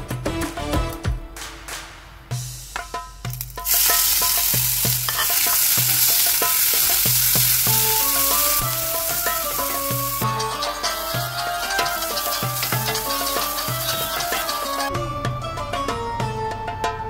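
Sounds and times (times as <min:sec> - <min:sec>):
onions sizzling in oil: 0:03.5 - 0:14.9.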